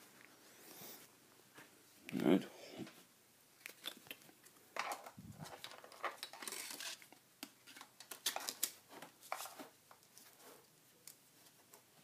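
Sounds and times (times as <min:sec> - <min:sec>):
rustling: 0:02.8 - 0:12.0.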